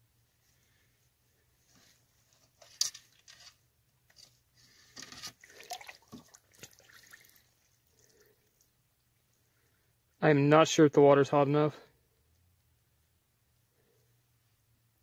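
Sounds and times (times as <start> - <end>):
water sloshing in a pot: 5.2 - 9.6.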